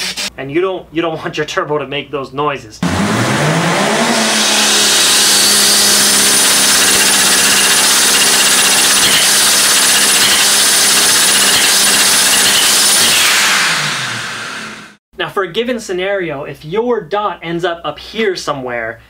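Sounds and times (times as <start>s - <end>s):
engine revving: 2.8s - 15.0s
high compressor whine: 3.0s - 15.0s.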